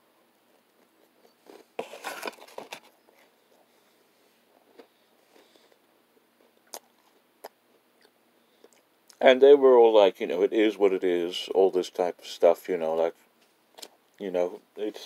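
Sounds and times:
person chewing food: 4.5 - 9.2.

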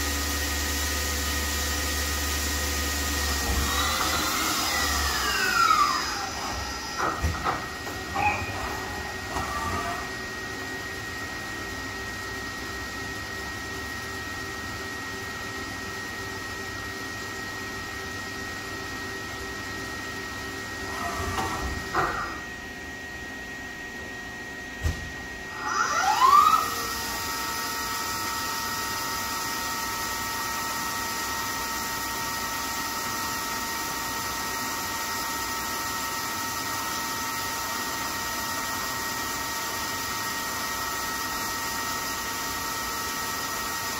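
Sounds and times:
drive spinning up whine: 0.0 - 15.5, 17.9 - 35.9
lathe machine whine: 0.0 - 43.9.

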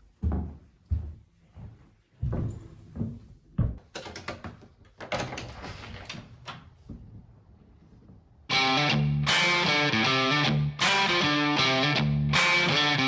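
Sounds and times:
footsteps in a hallway: 0.0 - 8.4
door opening: 3.7 - 7.3.

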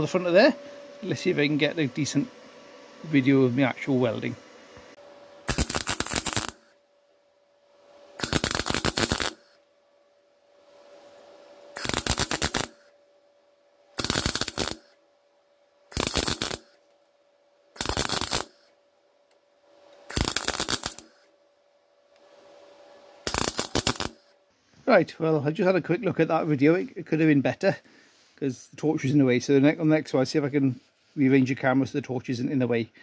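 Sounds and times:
faint steady hum: 0.0 - 33.0
welder crackling: 3.0 - 6.8, 8.2 - 9.6, 11.7 - 12.9, 14.0 - 15.0, 15.9 - 16.8, 17.8 - 18.7, 20.0 - 21.3, 23.2 - 24.3.

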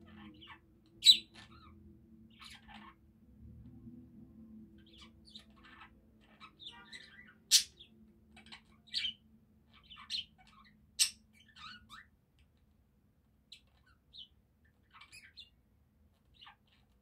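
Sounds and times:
budgerigar chirping and chattering: 0.0 - 3.0, 4.8 - 12.1, 13.5 - 15.6, 16.2 - 17.0
budgerigar sharp loud calls: 0.4 - 1.5.

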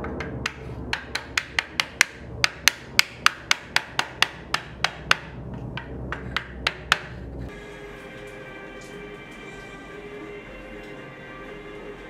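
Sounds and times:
hammer tapping on wooden block: 0.0 - 7.2.

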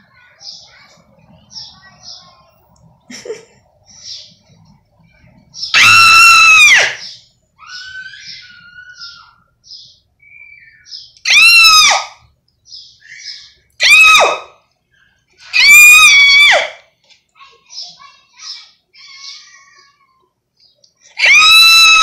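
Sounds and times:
person screaming shrill calls: 5.7 - 9.4, 11.3 - 12.2, 13.1 - 14.5, 15.5 - 16.8, 21.2 - 22.0.

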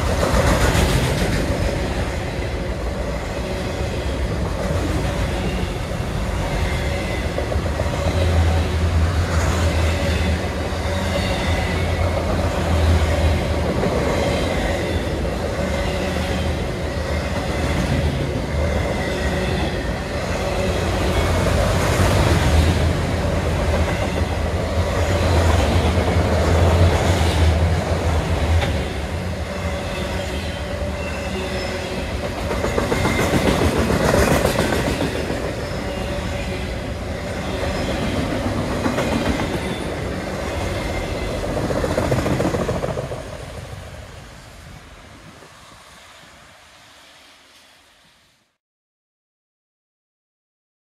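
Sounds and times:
freight train wheels rumbling on rails: 0.0 - 48.2.

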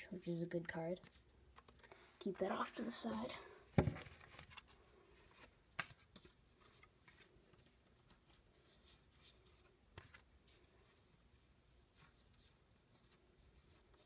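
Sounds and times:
trading cards clicking and rustling: 1.0 - 2.0.

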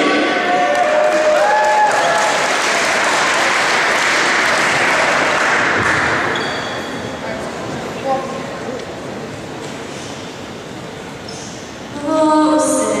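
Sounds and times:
crowd applauding: 0.0 - 6.9.

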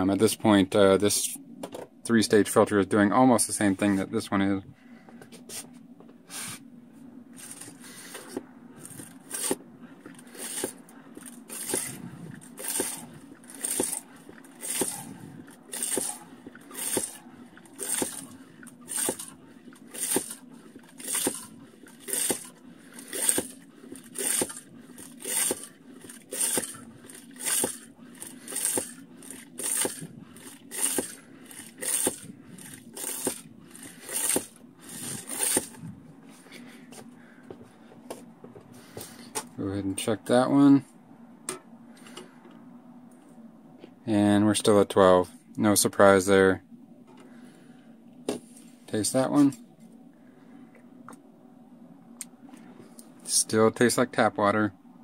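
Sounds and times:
low hum: 0.0 - 55.0
hand pump water filter pumping: 7.4 - 35.8.

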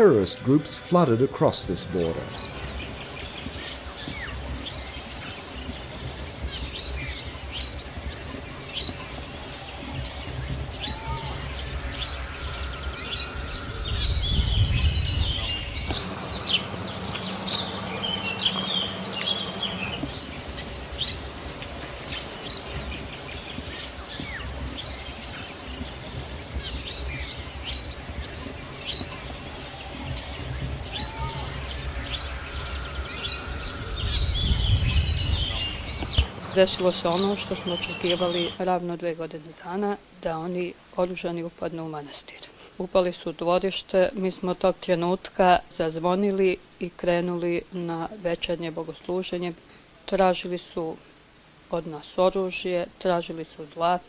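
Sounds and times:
steady low rumble: 0.0 - 40.2
small birds chirping: 1.6 - 45.4.

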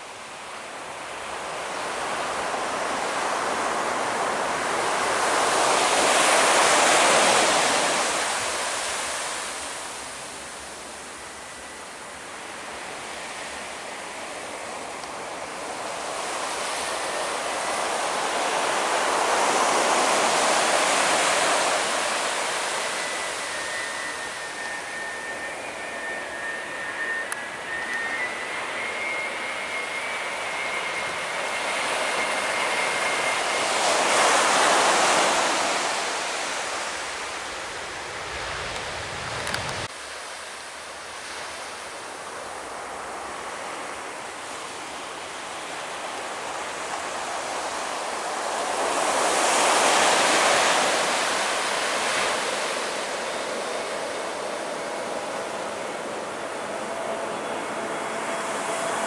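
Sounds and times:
distant jet airliner engine: 0.0 - 59.0
faint high engine whine: 0.0 - 59.0.

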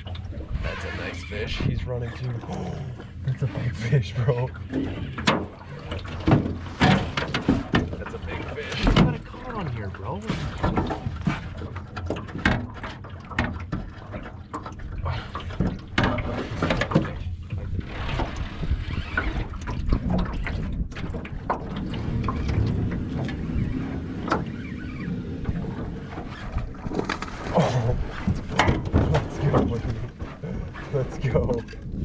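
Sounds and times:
water lapping at boat hull: 0.0 - 32.0
sharp knocks and clicks: 5.1 - 8.2, 28.2 - 30.3
wind buffeting microphone: 14.9 - 32.0.

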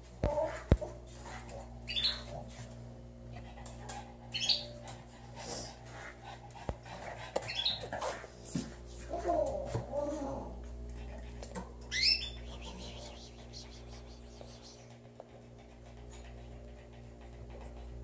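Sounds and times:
steady low hum: 0.0 - 18.0
canaries chirping: 11.9 - 14.8.

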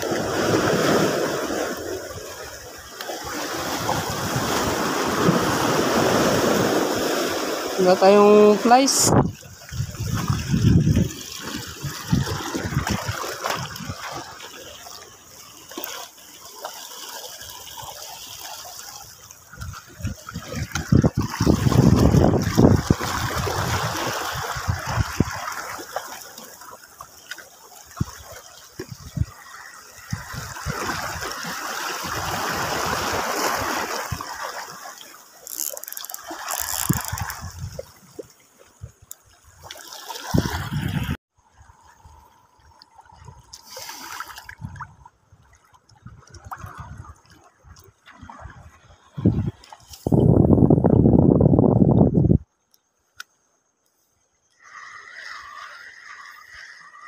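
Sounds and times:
waves splashing over rocks: 0.0 - 41.8, 54.6 - 57.0.

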